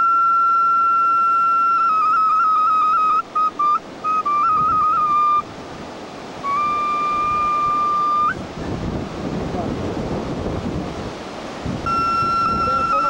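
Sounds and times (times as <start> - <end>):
flute playing trilled notes: 0.0 - 5.5, 6.4 - 8.4, 11.9 - 13.0.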